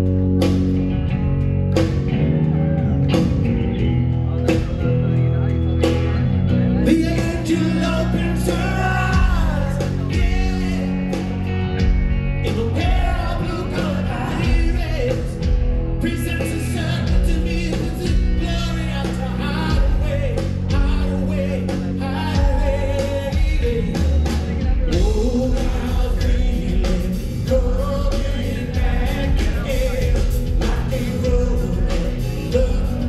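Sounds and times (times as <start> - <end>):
rock band playing live: 0.0 - 33.0
man singing into microphone: 6.8 - 11.3, 12.4 - 33.0.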